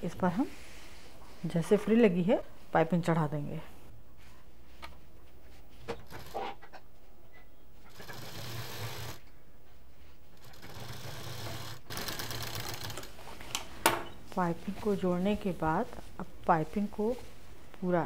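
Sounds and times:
sewing machine stitching: 7.9s - 9.2s, 10.4s - 13.1s.

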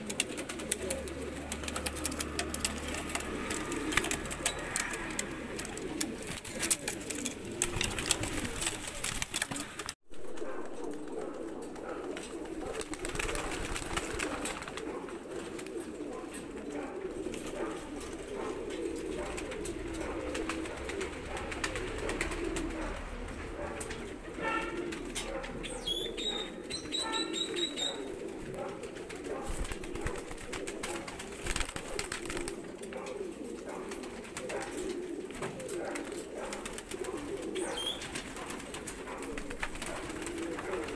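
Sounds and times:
pigeons cooing: 0.0s - 40.9s
small bird chirping: 25.6s - 28.1s.

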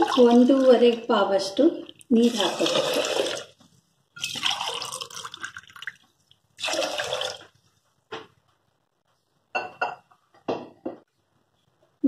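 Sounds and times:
water pouring into a pot: 0.0s - 1.0s, 2.0s - 3.6s, 4.2s - 7.5s.

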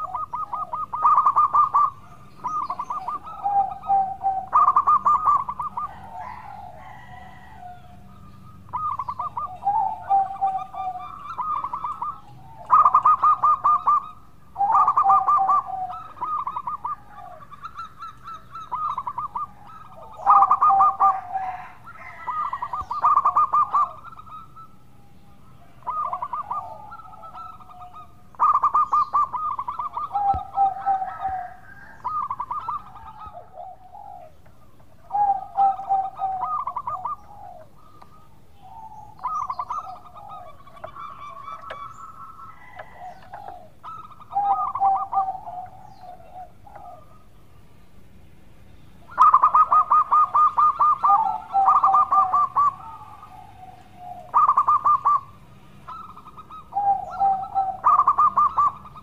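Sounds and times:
dove cooing: 0.0s - 47.4s, 48.9s - 59.0s.

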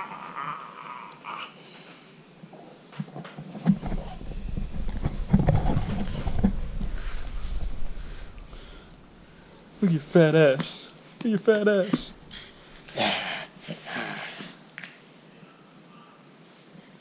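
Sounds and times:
thumps and rustling: 2.9s - 9.3s
camera handling rumble: 3.5s - 9.1s.

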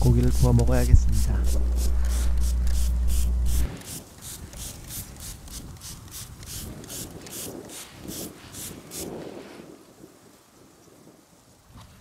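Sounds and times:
spray bottle hissing sprays: 0.3s - 9.2s.

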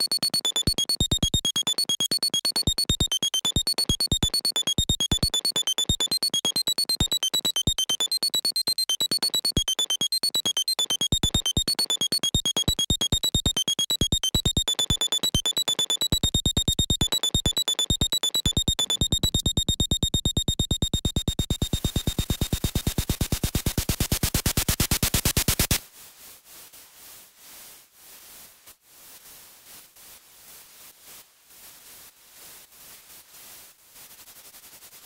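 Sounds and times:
high beeping tones: 0.0s - 23.0s
electronic music clicking pulses: 0.0s - 25.8s
hiss: 25.8s - 35.0s.

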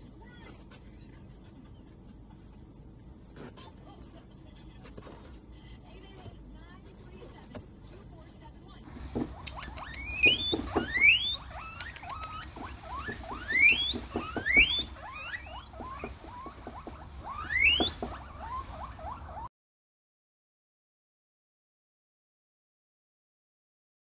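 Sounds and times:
guinea pigs wheeking: 8.9s - 19.5s.

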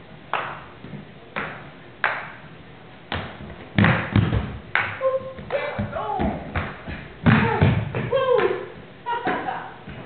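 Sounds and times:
paddles hitting ball: 3.1s - 8.6s.

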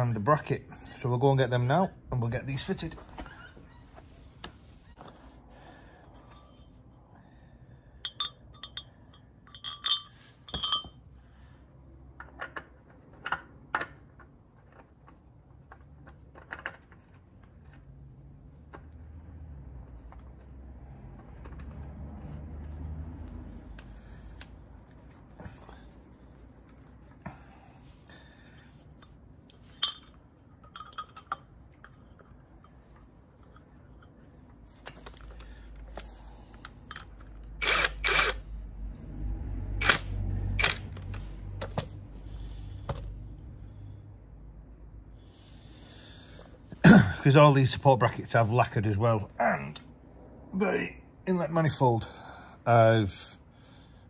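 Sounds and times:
metal parts clinking: 8.0s - 11.0s, 29.6s - 32.7s, 36.5s - 37.4s.

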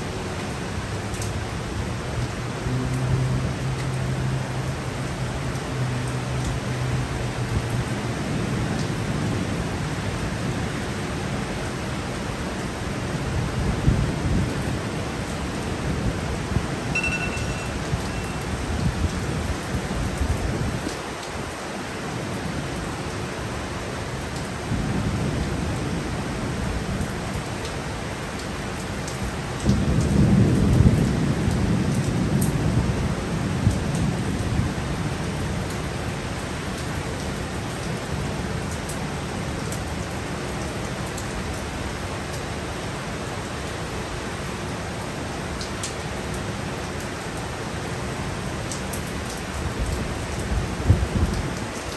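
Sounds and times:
heavy rain pouring: 0.0s - 51.9s
brief high chirp: 17.0s - 18.4s.

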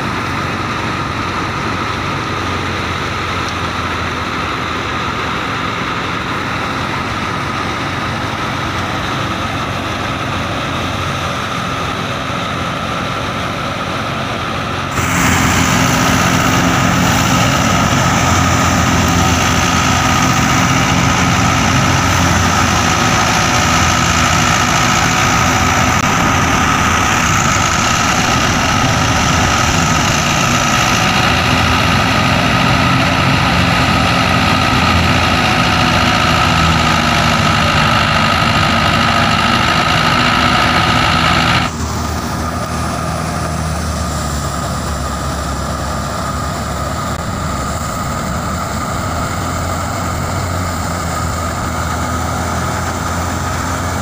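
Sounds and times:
tractor engine: 0.0s - 54.0s
high whine: 13.1s - 54.0s
threshing drum running: 14.9s - 43.8s, 46.9s - 54.0s.

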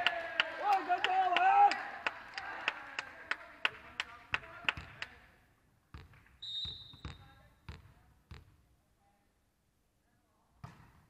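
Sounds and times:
ball bouncing on wooden floor: 5.9s - 8.6s
referee's whistle: 6.4s - 7.4s.

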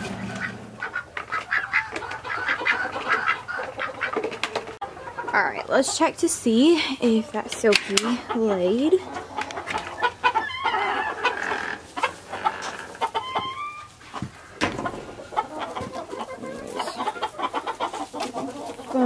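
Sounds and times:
chickens clucking: 0.0s - 19.0s
wooden coop door clicks and knocks: 14.6s - 15.2s.

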